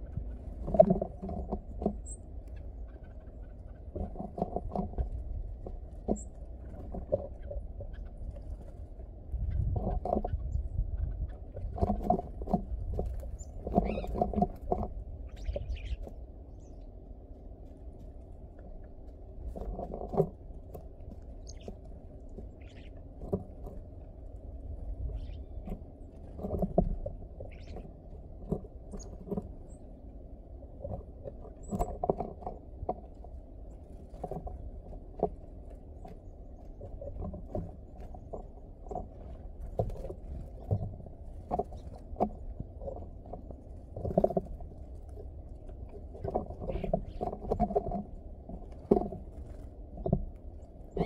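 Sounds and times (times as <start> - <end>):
steady low rumble: 0.0 - 4.0, 4.6 - 19.6, 20.4 - 47.2
birds pecking on wood: 0.0 - 51.0
bird chirps: 13.4 - 14.2, 15.2 - 16.9, 21.4 - 21.7, 22.5 - 23.0, 25.1 - 25.6, 27.4 - 27.9.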